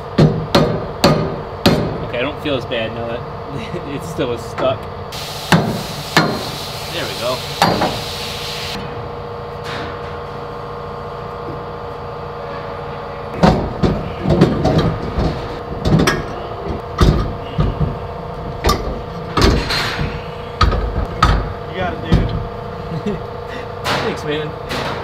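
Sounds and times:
steady background hum: 0.0 - 25.0
heavy metal clunks and knocks: 13.4 - 22.6.

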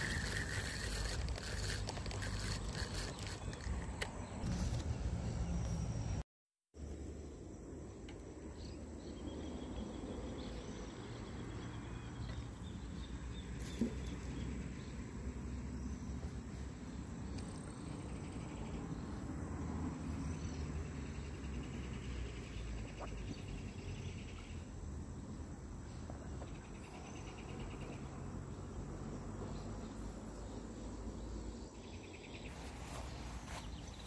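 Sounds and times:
insects trilling: 0.0 - 3.9.

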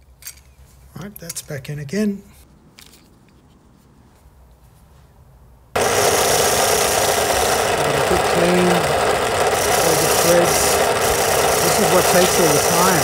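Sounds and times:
loud steady machine noise: 5.8 - 13.0.

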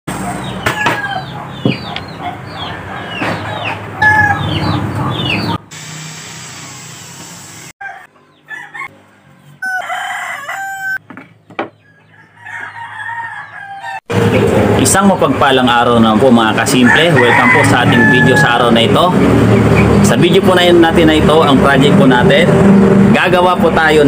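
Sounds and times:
rooster crowing and clucking: 0.1 - 5.2, 7.8 - 14.2, 16.6 - 19.0
electric drill running: 5.7 - 7.8.

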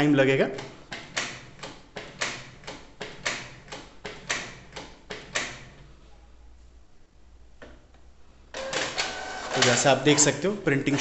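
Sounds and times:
printer mechanism clicking: 8.6 - 10.4.

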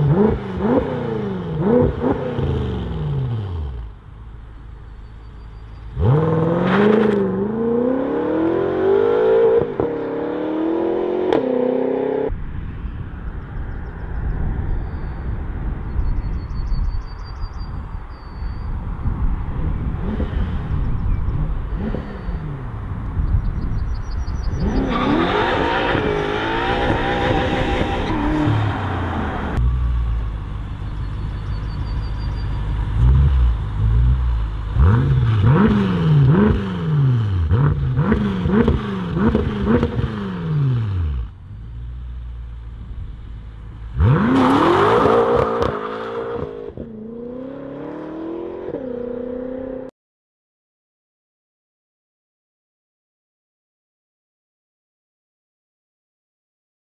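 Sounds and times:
engine rev blips: 5.1 - 12.3.

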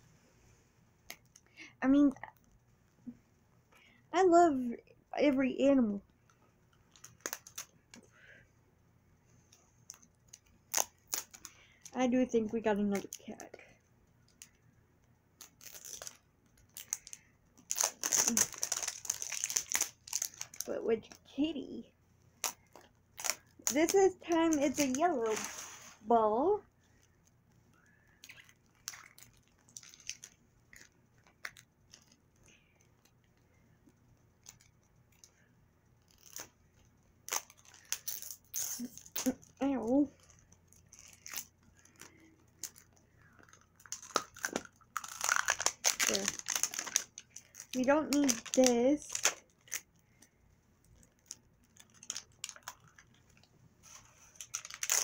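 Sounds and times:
plastic packaging clicks and crinkles: 6.8 - 8.1, 9.8 - 12.0, 12.8 - 14.6, 15.4 - 21.2, 22.4 - 25.6, 28.0 - 33.4, 34.4 - 35.4, 36.0 - 55.0.

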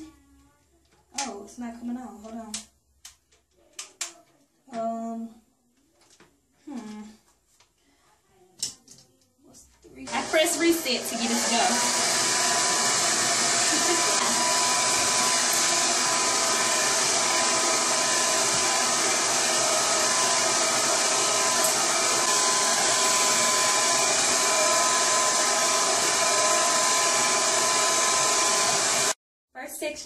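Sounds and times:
blow dryer running: 10.1 - 29.2.

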